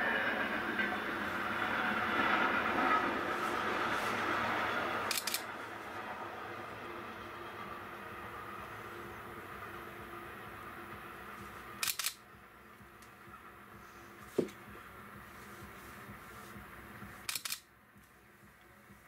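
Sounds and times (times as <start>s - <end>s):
distant freight train rumble: 0.0s - 19.0s
camera shutter clicks: 5.1s - 5.5s, 11.8s - 12.2s, 17.3s - 17.6s
soft knock: 14.3s - 14.6s.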